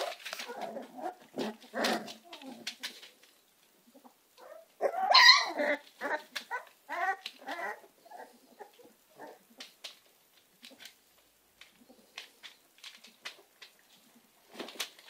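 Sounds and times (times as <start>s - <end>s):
puppies yelping and whining: 0.0s - 3.0s, 3.9s - 9.4s.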